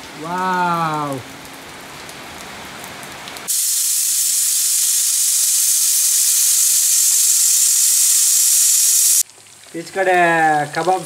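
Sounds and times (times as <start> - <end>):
rain falling: 0.0 - 11.0
food sizzling in hot oil: 3.4 - 9.3.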